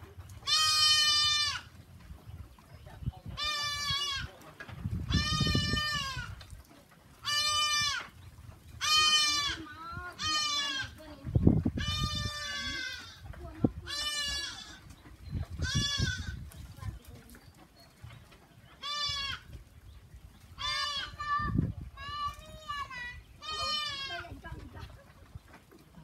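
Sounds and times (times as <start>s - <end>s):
goats bleating: 0.4s - 1.7s, 7.2s - 8.1s, 8.8s - 11.0s, 13.8s - 14.9s, 20.6s - 24.4s.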